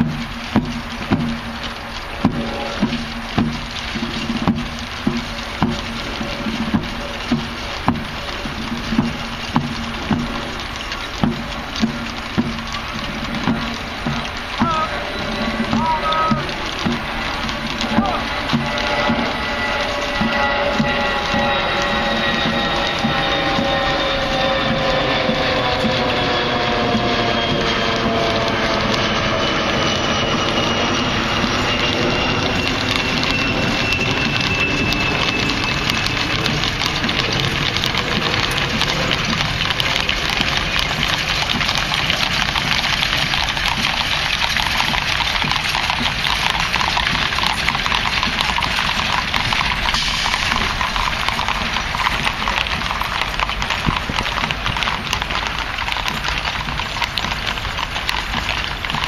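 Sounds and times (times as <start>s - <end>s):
horses clip-clopping on pavement: 0.0s - 59.0s
jet whine: 0.0s - 59.0s
marching footsteps: 0.0s - 59.0s.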